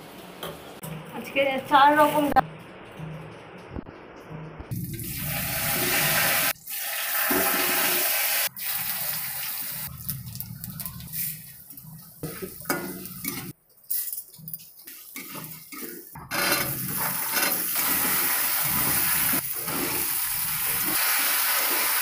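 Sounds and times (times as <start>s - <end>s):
spices sizzling in hot oil: 4.7s - 16.2s, 16.8s - 22.0s.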